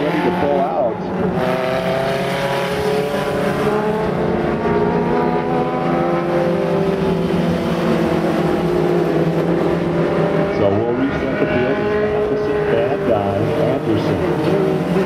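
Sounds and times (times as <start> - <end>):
race car engines: 0.0 - 15.0.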